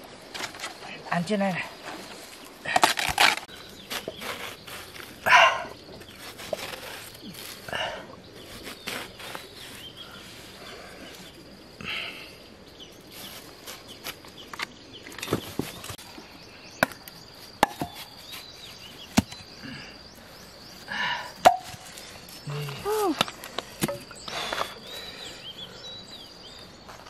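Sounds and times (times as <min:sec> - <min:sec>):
knife slicing watermelon: 0:06.0 - 0:07.6, 0:08.4 - 0:09.9.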